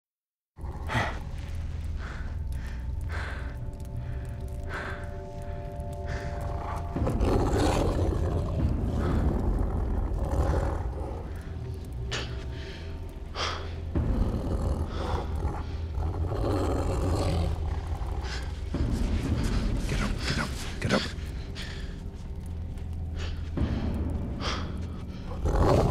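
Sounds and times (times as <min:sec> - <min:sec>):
steady low rumble: 0:00.6 - 0:25.9
wolves growling: 0:06.0 - 0:21.9, 0:24.4 - 0:25.9.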